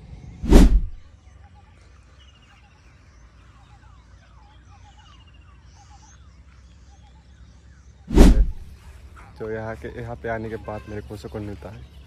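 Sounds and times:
faint birdsong trills and whistles: 0:00.0 - 0:12.0
steady low rumble: 0:00.4 - 0:01.0, 0:08.1 - 0:08.7.

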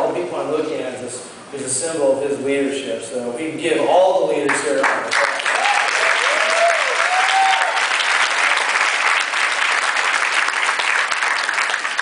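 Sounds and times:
audience applauding: 0:04.8 - 0:12.0.

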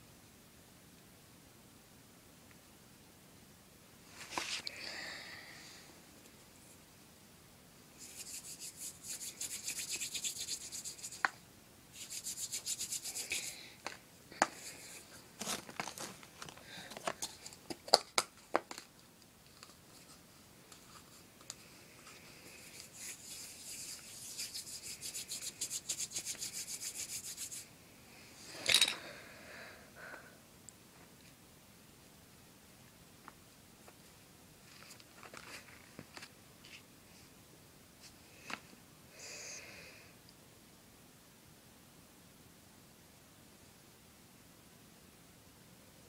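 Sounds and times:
hands rolling modelling clay: 0:08.0 - 0:27.7.

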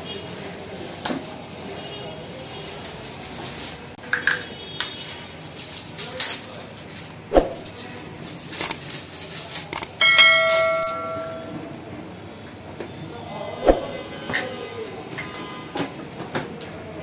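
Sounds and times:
bell ding: 0:10.0 - 0:11.6.

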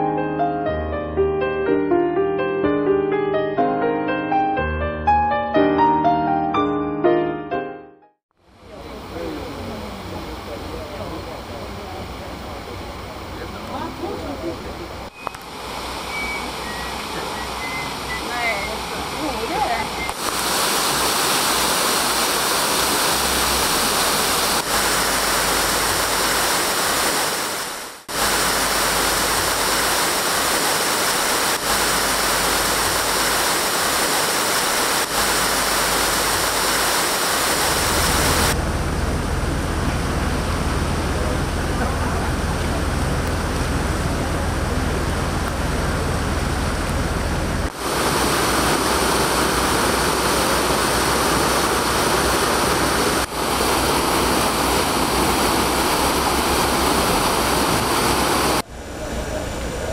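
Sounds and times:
water rushing through sluices: 0:09.6 - 0:58.7
low rumble: 0:37.7 - 0:47.7.

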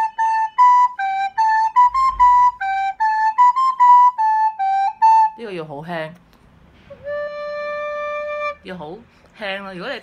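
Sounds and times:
recorder playing melody: 0:00.0 - 0:05.4, 0:06.9 - 0:08.7.

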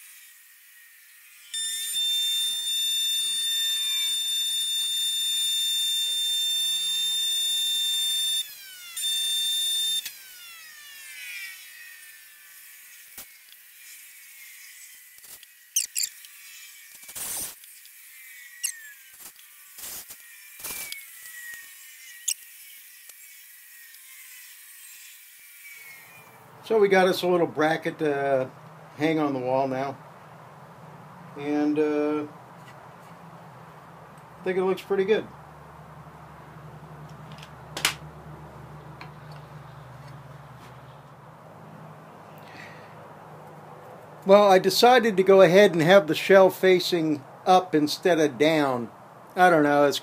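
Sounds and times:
power tool motor whining: 0:00.0 - 0:26.5
tool handling clicks and knocks: 0:37.1 - 0:38.0.

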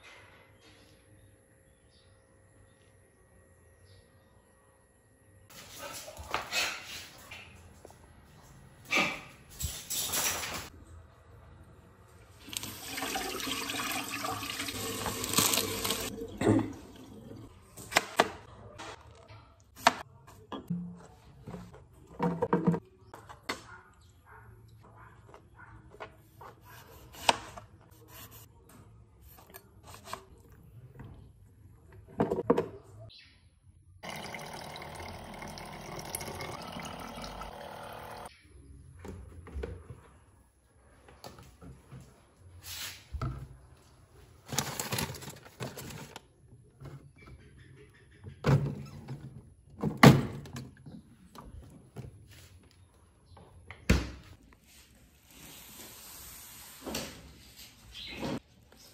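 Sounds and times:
water pouring into plastic jar: 0:34.0 - 0:38.3.

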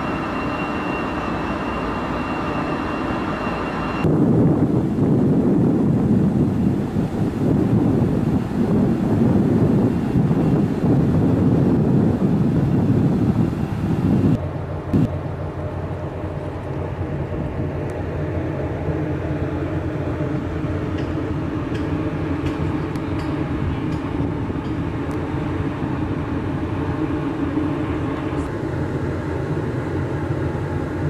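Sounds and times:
boat noise: 0:00.0 - 0:31.0
ship machinery drone: 0:00.0 - 0:31.0
wind buffeting microphone: 0:04.0 - 0:15.2.

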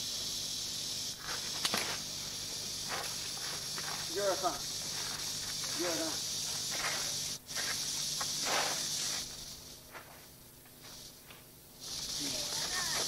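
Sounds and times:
camcorder tape hiss: 0:00.0 - 0:13.0
feet and clothes scuffing: 0:06.5 - 0:11.5.

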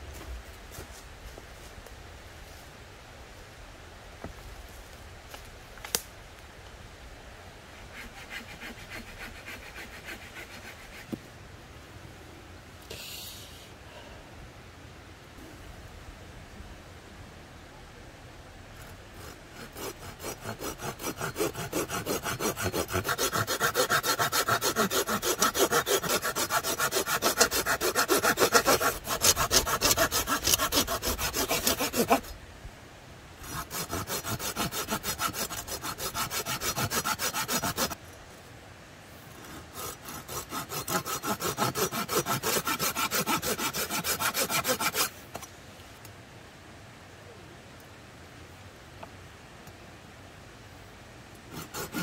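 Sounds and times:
saw cutting through branch: 0:07.9 - 0:11.1, 0:19.2 - 0:32.4, 0:33.4 - 0:38.0, 0:39.4 - 0:45.2, 0:51.5 - 0:52.0.

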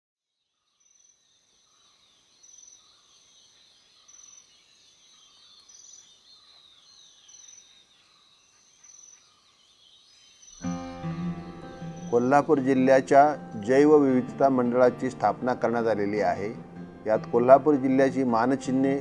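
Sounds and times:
continuous bird twittering: 0:00.3 - 0:14.2.

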